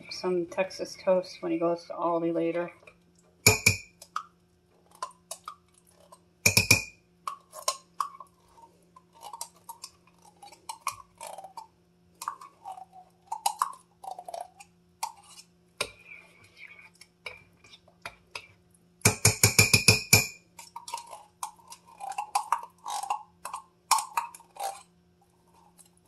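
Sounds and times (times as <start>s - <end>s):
utensil knocking on ceramic pot: 3.5s - 3.9s, 6.5s - 6.9s, 19.1s - 20.4s.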